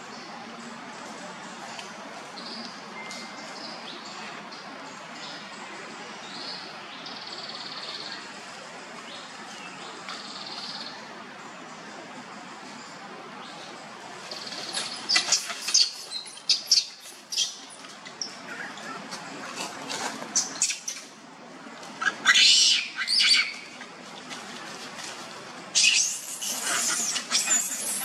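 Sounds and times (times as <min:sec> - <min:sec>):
baby monkey distress squeals: 0:25.8 - 0:28.0.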